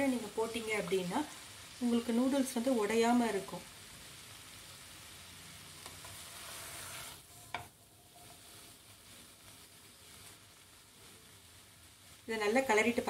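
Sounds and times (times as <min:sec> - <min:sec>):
faint sizzle: 0:00.0 - 0:13.0
noodles stir-frying in a pan: 0:00.0 - 0:13.0
spatula tossing food: 0:05.8 - 0:13.0.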